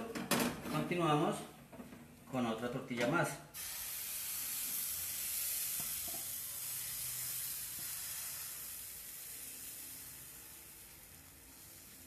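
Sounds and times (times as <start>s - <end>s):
batter sizzling in frying pan: 3.6s - 12.0s.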